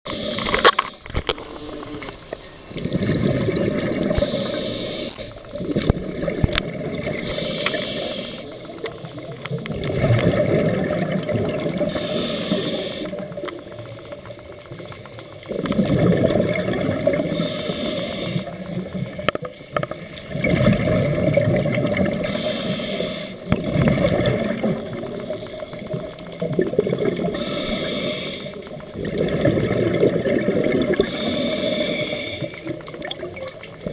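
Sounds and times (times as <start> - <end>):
regulator inhalation hiss: 0.1 - 1.0, 4.2 - 5.4, 7.2 - 8.8, 11.9 - 13.3, 17.3 - 18.7, 22.2 - 23.5, 27.4 - 28.7, 31.0 - 32.7
exhaled bubbles rushing: 1.1 - 4.5, 5.3 - 7.5, 8.5 - 17.5, 20.0 - 22.4, 23.4 - 27.6, 28.6 - 31.2, 32.6 - 33.9.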